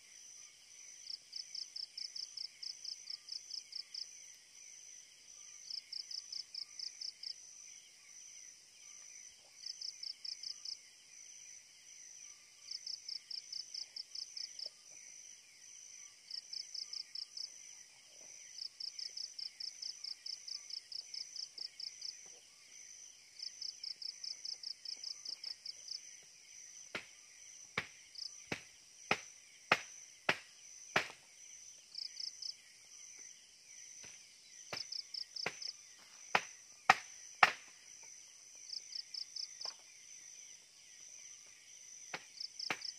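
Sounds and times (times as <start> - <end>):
insects chirping: 0.0 - 42.9.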